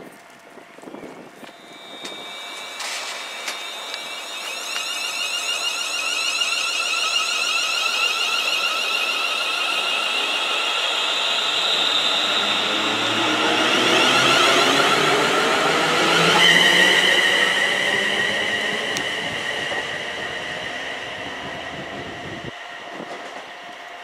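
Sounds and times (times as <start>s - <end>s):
electric train whine rising: 1.4s - 24.0s.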